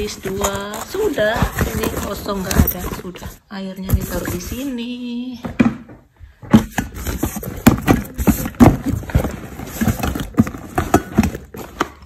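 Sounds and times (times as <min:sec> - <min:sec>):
nylon backpack rustling: 0:00.0 - 0:03.4, 0:07.1 - 0:12.0.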